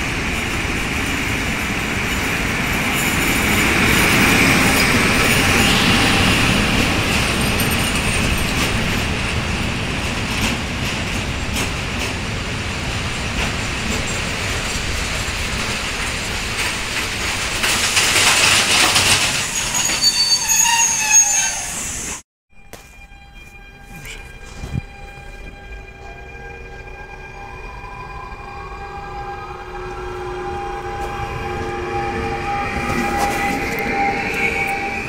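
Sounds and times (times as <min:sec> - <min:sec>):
train wheels rumbling on rails: 0:00.0 - 0:35.0
high wheel squeals: 0:18.4 - 0:35.0.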